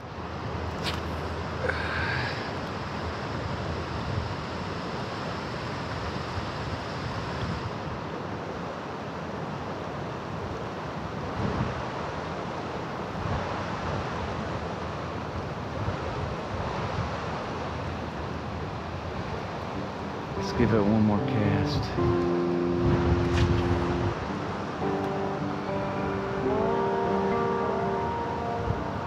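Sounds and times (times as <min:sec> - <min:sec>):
water flowing over rocks: 0:00.0 - 0:03.8
wind on microphone: 0:00.8 - 0:08.1, 0:11.0 - 0:12.2, 0:13.1 - 0:20.6, 0:21.6 - 0:29.0.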